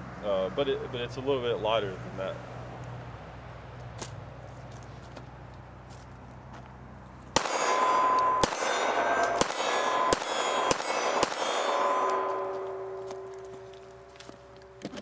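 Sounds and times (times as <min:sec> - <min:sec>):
pistol shots: 0:07.4 - 0:13.5
steel targets clanging: 0:07.4 - 0:14.8.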